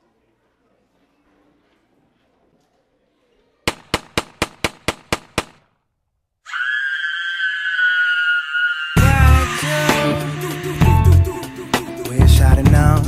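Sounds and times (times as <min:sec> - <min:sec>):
rapid gunshots: 0:03.7 - 0:05.7
high-pitched scream: 0:06.4 - 0:11.8.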